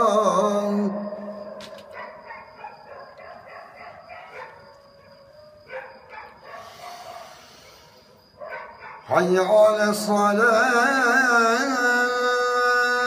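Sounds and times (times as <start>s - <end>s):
dog barking and yelping: 1.8s - 7.4s, 8.4s - 9.1s.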